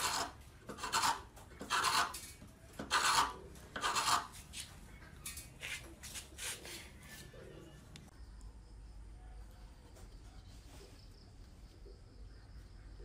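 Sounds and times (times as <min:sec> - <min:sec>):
wood chisel scraping wood: 0:00.0 - 0:04.4.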